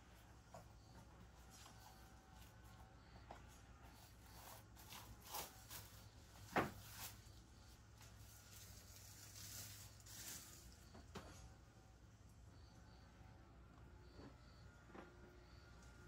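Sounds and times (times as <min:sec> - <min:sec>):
faint rustles and clicks: 0:00.0 - 0:11.6
steady low hum: 0:00.0 - 0:16.0.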